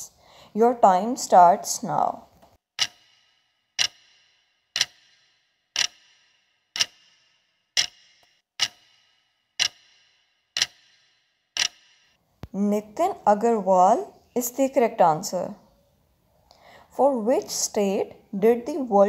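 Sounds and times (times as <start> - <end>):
clock ticking: 2.8 - 12.2.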